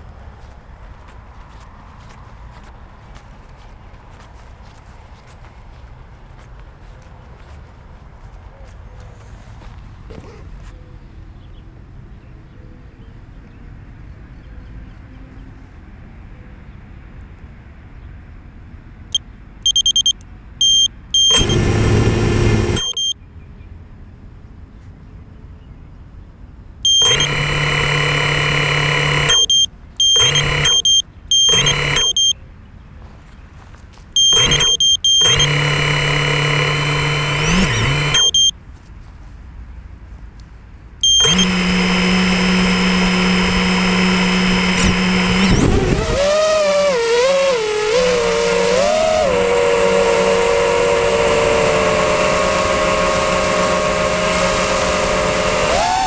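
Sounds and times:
faint outdoor background: 0:00.0 - 0:56.0
short high beeps: 0:19.7 - 0:21.7, 0:22.7 - 0:23.2, 0:26.9 - 0:32.4, 0:34.2 - 0:38.6, 0:41.0 - 0:45.7
drone motors spinning up: 0:20.6 - 0:23.1, 0:26.9 - 0:32.3, 0:34.2 - 0:38.5, 0:41.0 - 0:56.0.

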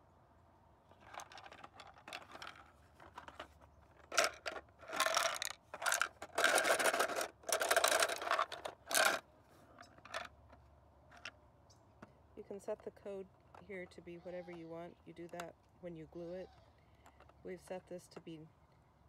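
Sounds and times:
plastic parts scraping and rattling: 0:00.9 - 0:11.4.

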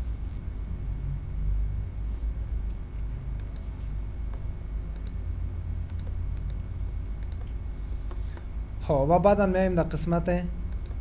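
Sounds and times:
steady low hum: 0:00.0 - 0:11.0
computer mouse clicking: 0:03.0 - 0:05.2, 0:05.8 - 0:08.5, 0:10.7 - 0:11.0.

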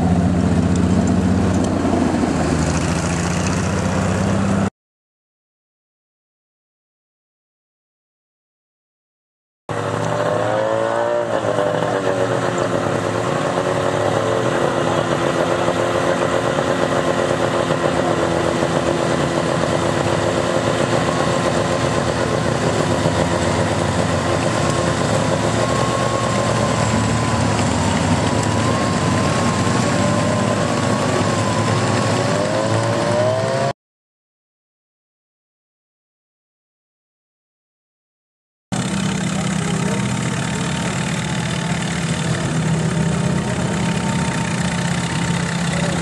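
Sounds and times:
tracked snow vehicle engine running: 0:00.0 - 0:04.7, 0:09.7 - 0:33.8, 0:38.7 - 0:46.0.

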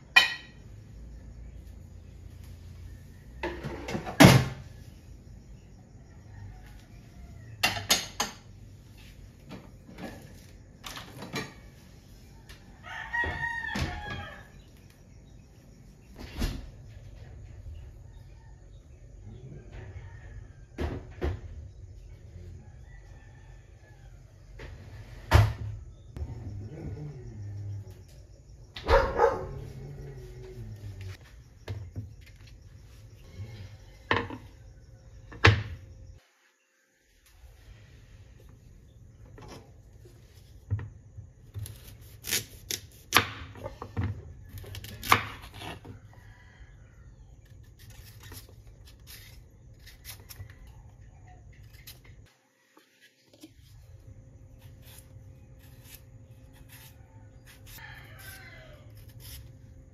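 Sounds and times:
rooster crowing: 0:05.4 - 0:07.7, 0:12.3 - 0:14.7, 0:18.0 - 0:20.9, 0:22.4 - 0:24.7, 0:45.6 - 0:47.4, 0:56.6 - 0:59.9
dog barking: 0:28.8 - 0:29.8.

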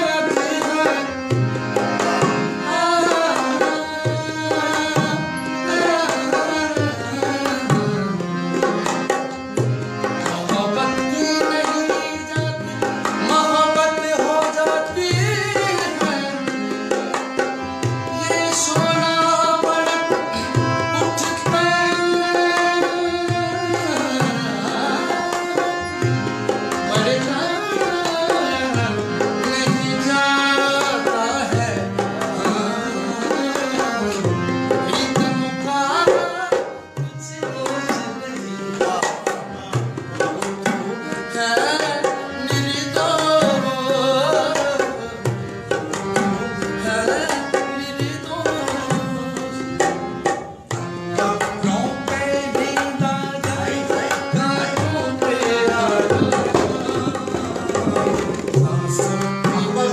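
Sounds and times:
harmonium: 0:00.0 - 0:59.9
person singing: 0:18.0 - 0:26.0, 0:51.2 - 0:59.9
tabla strokes: 0:38.8 - 0:59.8.

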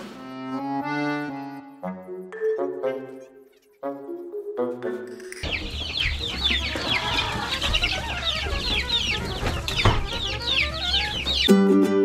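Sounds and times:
ukulele music: 0:02.2 - 0:12.0
chicks peeping: 0:05.4 - 0:12.0.

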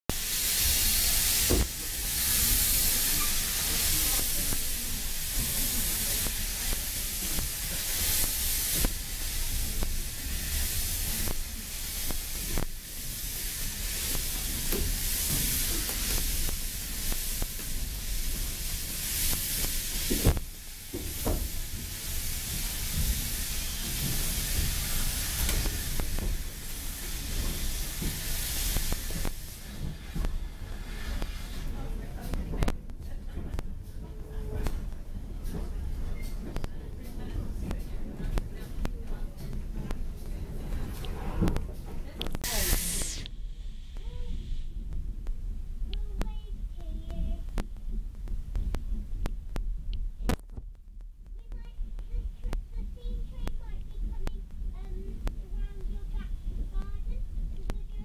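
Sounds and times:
steam locomotive hissing: 0:00.1 - 0:32.5, 0:37.5 - 0:44.9.

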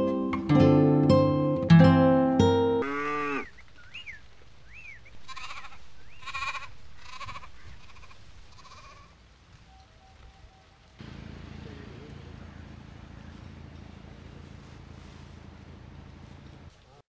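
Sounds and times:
goat bleating: 0:02.8 - 0:03.5, 0:05.2 - 0:09.2.

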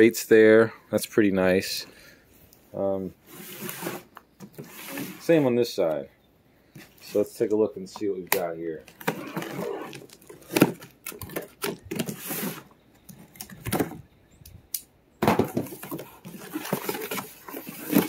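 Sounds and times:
cardboard flaps scraping: 0:03.2 - 0:05.4, 0:08.9 - 0:12.7, 0:15.5 - 0:18.0
packing tape tearing: 0:08.9 - 0:12.6.

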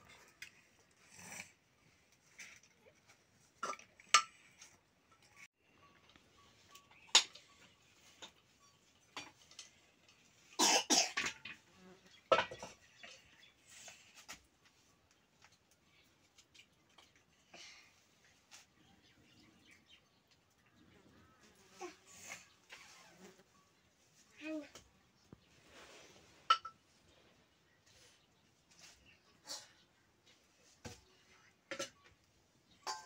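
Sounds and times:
metal pots and lids clinking: 0:03.6 - 0:05.5, 0:06.1 - 0:11.6, 0:12.2 - 0:13.4, 0:26.4 - 0:26.8, 0:31.7 - 0:33.0.

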